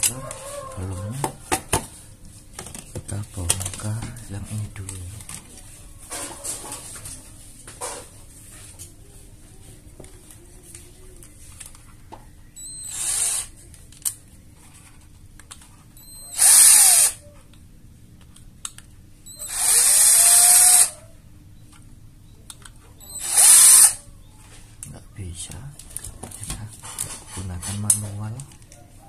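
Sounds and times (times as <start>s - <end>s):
electric screwdriver whining: 12.6s - 13.5s, 16.1s - 17.2s, 19.3s - 21.0s, 23.1s - 24.0s.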